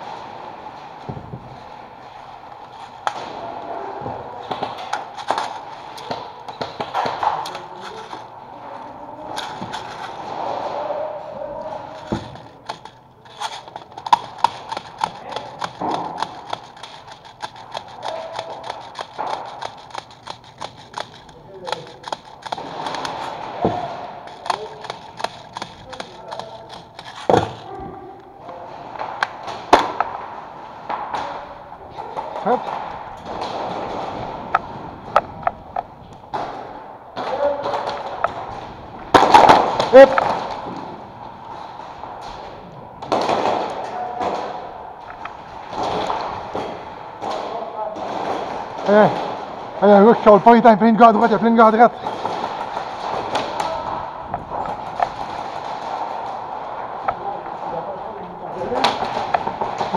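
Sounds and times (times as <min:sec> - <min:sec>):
sharp taps and knocks: 0:11.9 - 0:27.7.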